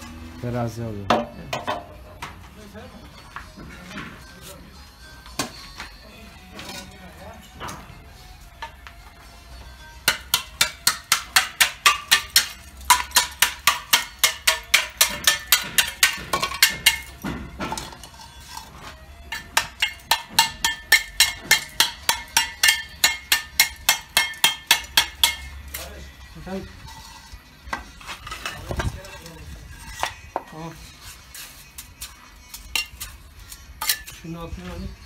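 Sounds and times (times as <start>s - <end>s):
trowel chopping clay brick: 10.1s - 18.1s, 19.3s - 25.5s.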